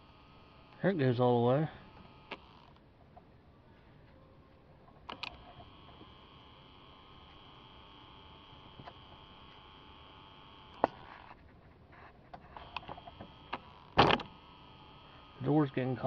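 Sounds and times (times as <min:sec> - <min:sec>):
faint motor hum: 0:00.0 - 0:16.0
actuator motor click: 0:01.8 - 0:02.8, 0:05.0 - 0:11.1, 0:12.6 - 0:14.9.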